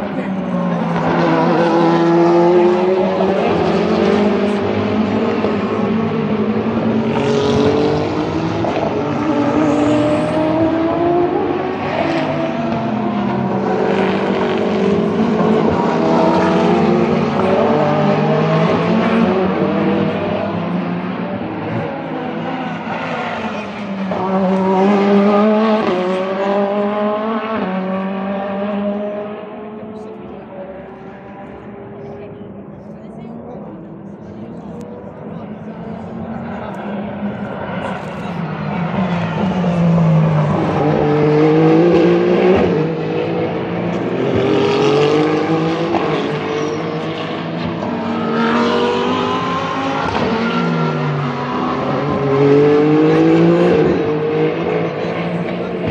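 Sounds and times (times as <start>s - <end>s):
race car engine passing: 0.0s - 32.7s, 33.4s - 55.9s.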